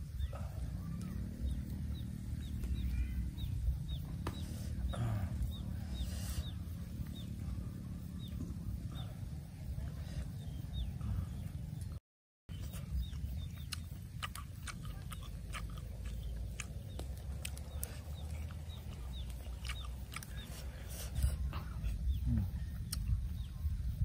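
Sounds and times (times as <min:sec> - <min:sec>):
chewing and lip-smacking: 0:12.5 - 0:21.5.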